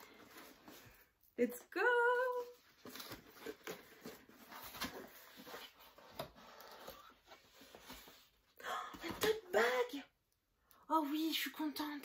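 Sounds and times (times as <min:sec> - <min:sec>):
rustling of cardboard and packing: 0:00.0 - 0:01.2, 0:01.9 - 0:09.2.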